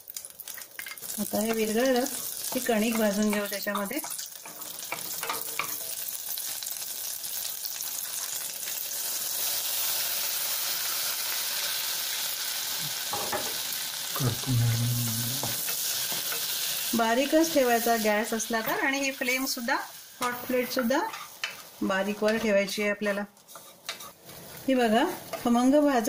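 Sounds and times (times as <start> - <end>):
butter sizzling in a saucepan: 0.0 - 26.0
wooden spoon stirring: 21.1 - 25.7.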